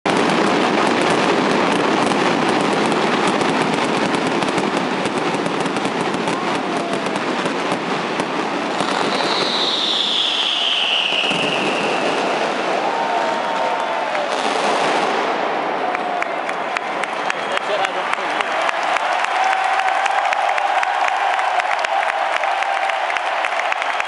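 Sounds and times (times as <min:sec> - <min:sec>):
fireworks crackling and popping: 0:00.0 - 0:17.8
large crowd noise: 0:00.1 - 0:24.0
high falling whistle: 0:08.9 - 0:12.4.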